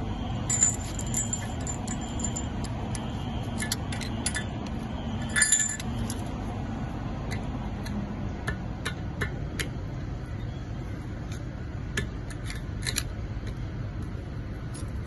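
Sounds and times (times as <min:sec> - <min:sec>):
metal tool clinking on grating: 0:00.5 - 0:02.8.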